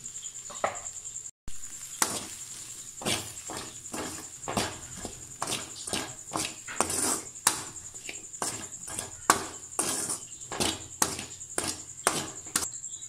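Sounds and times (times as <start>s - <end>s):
ladle scraping a metal pan: 1.9s - 12.7s.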